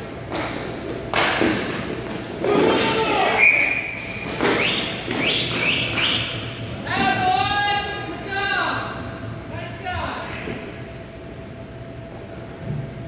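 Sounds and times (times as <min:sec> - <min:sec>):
people shouting: 0:02.4 - 0:03.8.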